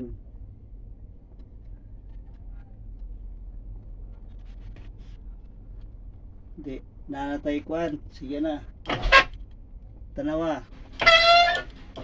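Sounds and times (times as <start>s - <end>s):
steady low rumble: 0.0s - 11.0s
hands twisting wires: 8.9s - 9.5s, 11.0s - 12.0s.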